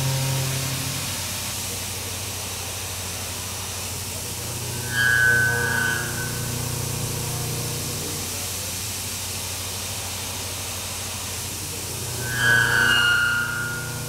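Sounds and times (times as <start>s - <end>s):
low spindle hum: 0.0s - 1.2s, 4.3s - 8.4s, 11.8s - 14.0s
high-pitched chatter squeal: 4.7s - 6.7s, 12.0s - 14.0s.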